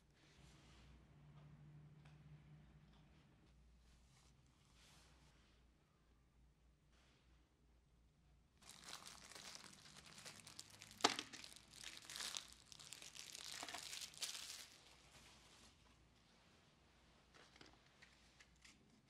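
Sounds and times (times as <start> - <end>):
crinkly rustling and crackling: 8.6 - 15.9.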